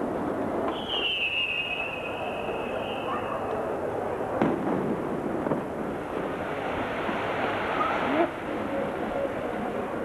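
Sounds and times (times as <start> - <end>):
distant crowd: 0.0 - 10.0.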